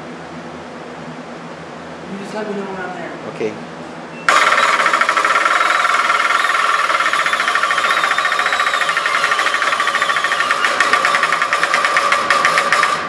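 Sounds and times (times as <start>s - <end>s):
winch rattling: 4.3s - 13.0s.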